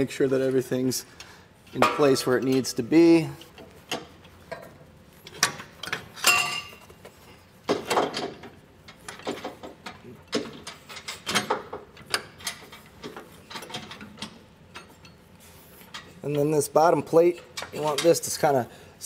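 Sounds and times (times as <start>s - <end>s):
metal clatter: 1.7s - 15.2s
metal knocks and clinks: 5.3s - 6.9s.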